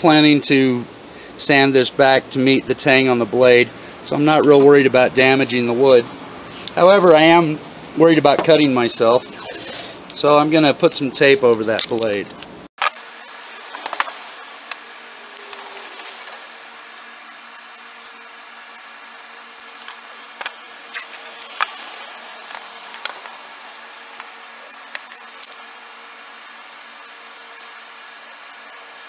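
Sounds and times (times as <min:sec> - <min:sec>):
tape peeling off roll: 0:12.8 - 0:29.0.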